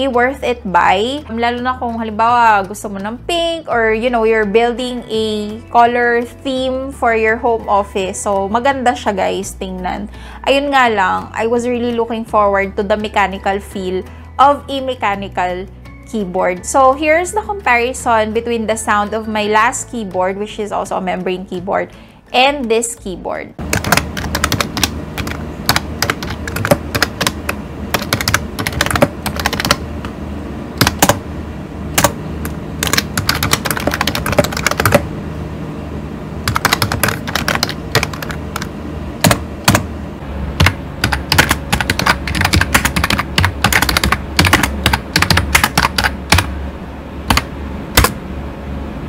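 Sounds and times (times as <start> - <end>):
fast typing on keyboard: 23.6 - 29.8, 30.8 - 31.2, 32.8 - 35.0, 36.5 - 39.8, 40.6 - 46.5, 47.3 - 48.1.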